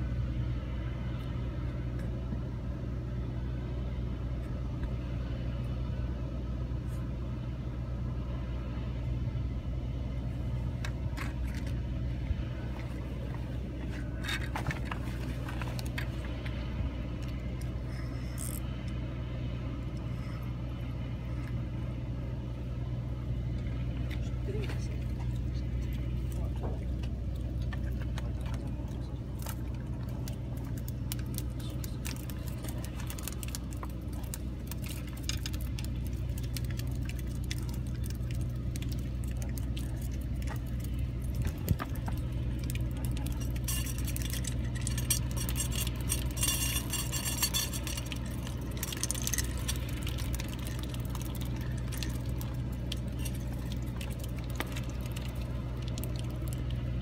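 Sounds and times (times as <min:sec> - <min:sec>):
low engine hum: 0:00.0 - 0:57.0
fishing tackle clinking: 0:43.2 - 0:50.8.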